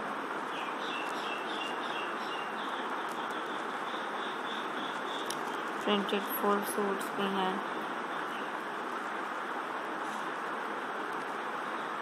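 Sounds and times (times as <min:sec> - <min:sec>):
bird chirping: 0:00.5 - 0:05.7, 0:07.7 - 0:08.6.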